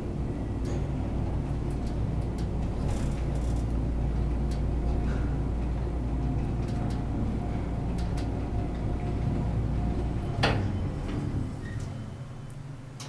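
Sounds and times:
elevator low rumble: 0.0 - 13.0.

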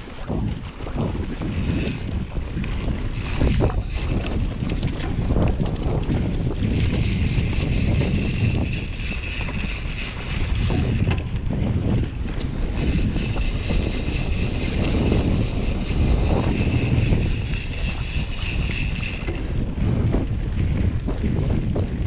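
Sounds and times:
bike tyres rattling over dirt: 0.0 - 22.0
wind buffeting microphone: 0.0 - 22.0.

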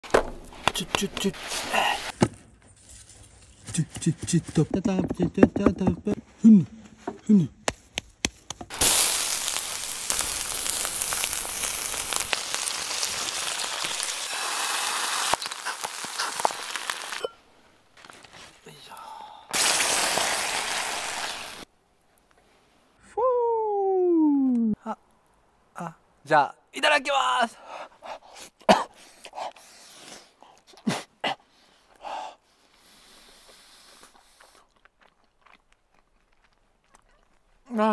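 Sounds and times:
sauce hissing in hot pan: 8.7 - 17.2, 19.5 - 21.7
patty sizzling on charcoal grill: 8.7 - 17.3, 19.6 - 21.7
person huffing breaths: 27.6 - 34.4.

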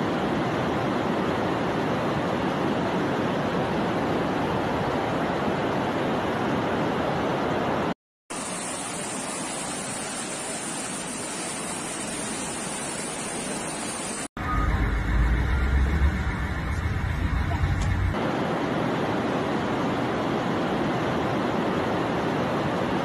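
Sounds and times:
deep rumble: 14.4 - 18.2.

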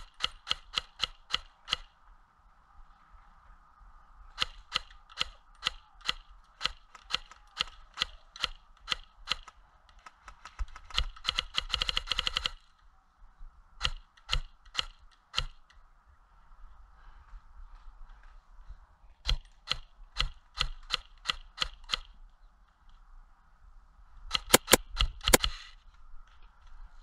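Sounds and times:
airsoft gun full-auto burst: 10.3 - 12.6, 24.3 - 25.6
airsoft gun single shots: 24.3 - 25.6.

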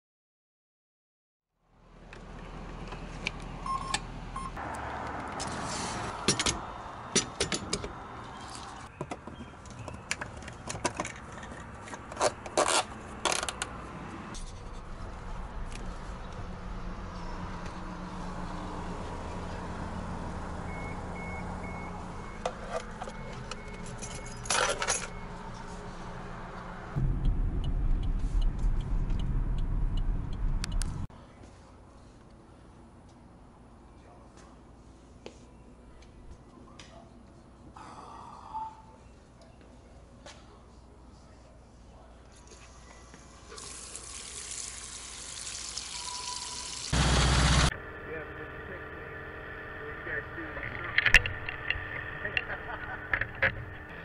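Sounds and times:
car pulling away: 14.9 - 23.9, 46.9 - 54.0
fuel pump whirring: 45.9 - 54.0
car engine idling: 46.9 - 54.0.

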